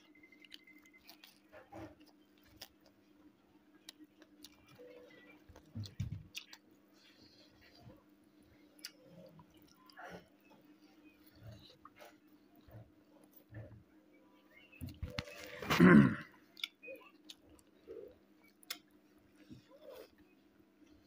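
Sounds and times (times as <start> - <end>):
chewing and biting: 0.0 - 3.0, 3.8 - 7.8
low steady hum: 0.0 - 21.0.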